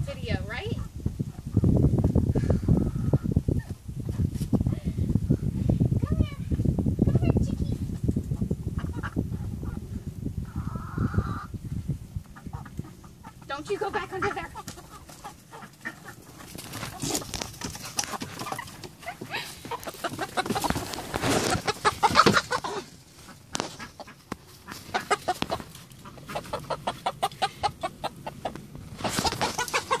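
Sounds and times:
hens clucking and squawking: 0:00.7 - 0:04.2, 0:08.2 - 0:30.0
rough scuffle: 0:16.4 - 0:23.9, 0:29.0 - 0:30.0.

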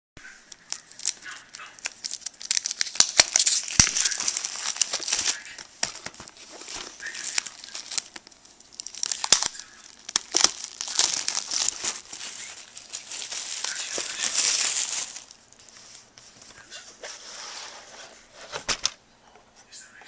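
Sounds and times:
plastic shrink-wrap crinkling: 0:00.5 - 0:16.3.

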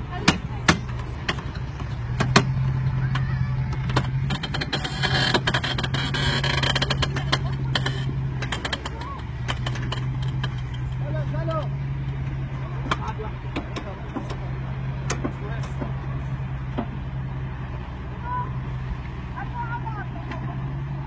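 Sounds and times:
car engine running under load: 0:00.0 - 0:21.0
sharp clicks and knocks: 0:00.2 - 0:11.2, 0:12.0 - 0:16.0.

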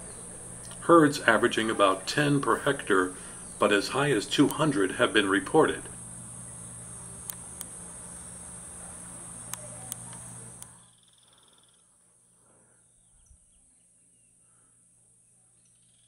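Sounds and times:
high-pitched insect chorus: 0:00.0 - 0:11.9
sharp clicks: 0:04.4 - 0:04.7, 0:07.2 - 0:07.8.

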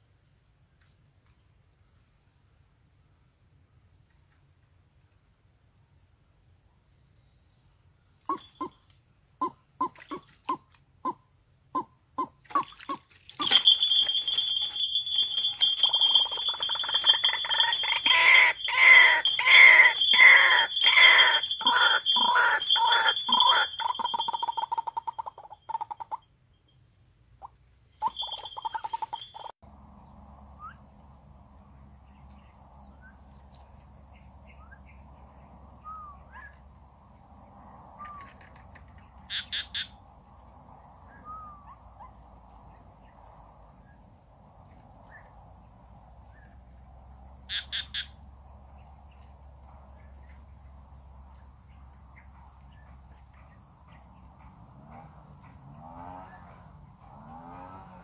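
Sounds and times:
faint bird chirps: 0:08.2 - 0:10.6, 0:11.8 - 0:26.8, 0:28.0 - 0:29.5, 0:35.8 - 0:36.6, 0:38.0 - 0:39.8, 0:41.1 - 0:43.2
bird harsh repeated croaks: 0:08.2 - 0:26.3, 0:27.4 - 0:29.5, 0:38.0 - 0:40.0, 0:47.5 - 0:48.2.

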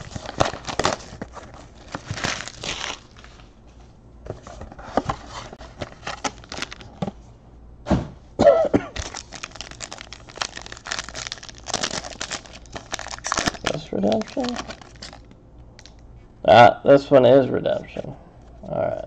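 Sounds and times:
foil wrapper crinkling: 0:00.0 - 0:03.5, 0:05.6 - 0:07.0, 0:08.9 - 0:16.0.

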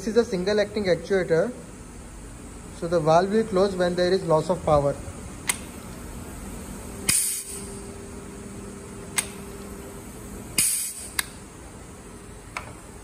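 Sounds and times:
solenoid coil humming: 0:00.0 - 0:13.0
solenoid valve clicking: 0:05.4 - 0:05.7, 0:09.1 - 0:09.4
compressed air hissing: 0:07.0 - 0:07.9, 0:10.0 - 0:11.4
air exhausting burst: 0:07.0 - 0:08.0, 0:10.0 - 0:11.2.

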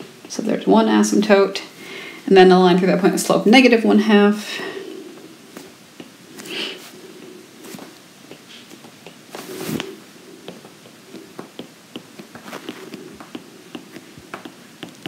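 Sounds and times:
stylus tapping on tablet screen: 0:05.6 - 0:06.2, 0:08.2 - 0:15.0.

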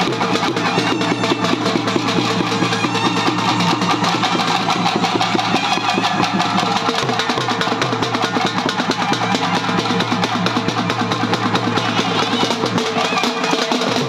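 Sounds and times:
fast dense drumming: 0:00.0 - 0:14.0.

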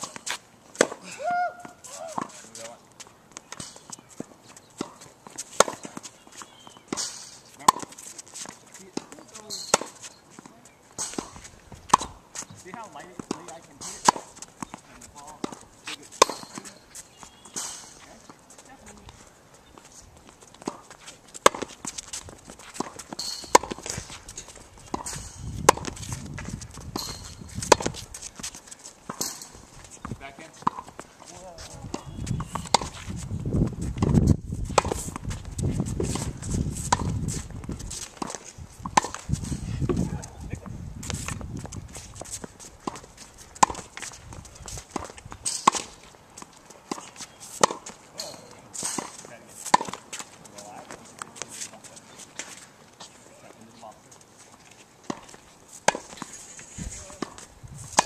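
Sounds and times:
racquet hitting tennis ball: 0:00.0 - 0:01.0, 0:03.5 - 0:06.1, 0:06.8 - 0:10.0, 0:11.0 - 0:18.0, 0:20.6 - 0:26.2, 0:26.8 - 0:28.0, 0:30.5 - 0:31.0, 0:31.9 - 0:33.1, 0:34.0 - 0:35.4, 0:36.0 - 0:37.2, 0:37.9 - 0:40.0, 0:42.2 - 0:44.1, 0:44.7 - 0:50.3, 0:55.0 - 0:56.4
footsteps: 0:00.0 - 0:58.0
ball bouncing on hard court: 0:24.8 - 0:28.1.

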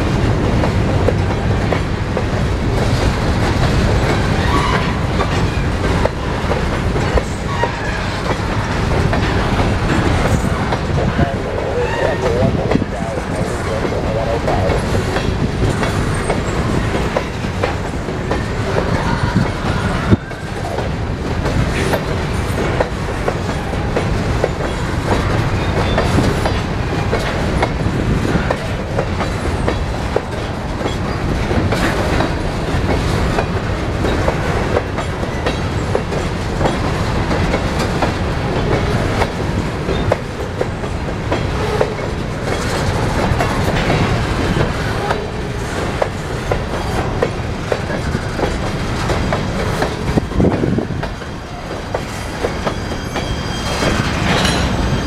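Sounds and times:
freight train rumbling: 0:00.0 - 0:55.0.

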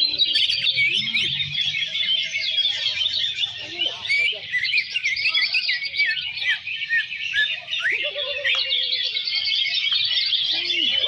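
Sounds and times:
chorus of birds singing: 0:00.0 - 0:11.0.

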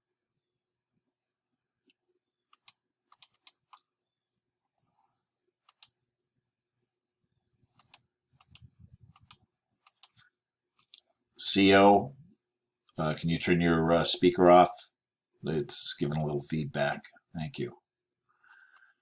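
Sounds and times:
computer mouse clicks: 0:01.8 - 0:03.8, 0:05.6 - 0:06.0, 0:07.7 - 0:11.1, 0:18.7 - 0:19.0
keyboard clicks: 0:02.5 - 0:03.8, 0:05.6 - 0:06.0, 0:07.8 - 0:10.2.

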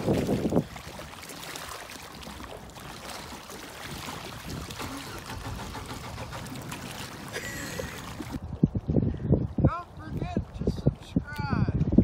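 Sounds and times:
distant boat engine running: 0:04.1 - 0:08.3.

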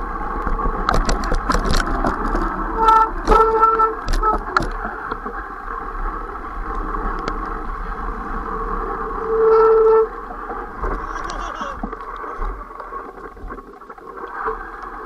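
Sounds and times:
wind on camera: 0:00.0 - 0:05.4
bike trail rattle: 0:00.0 - 0:13.1.

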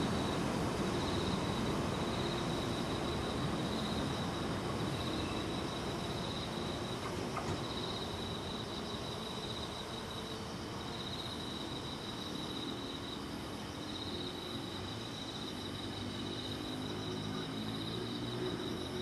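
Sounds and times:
crickets trilling: 0:00.0 - 0:19.0.

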